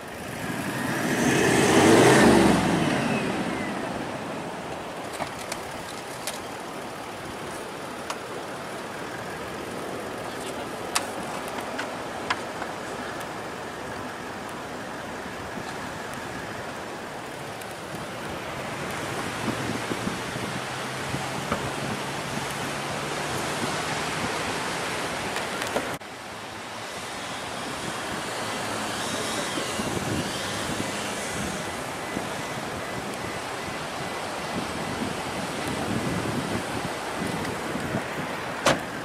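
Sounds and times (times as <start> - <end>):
wind noise on microphone: 15.3 - 26.0, 27.5 - 39.0.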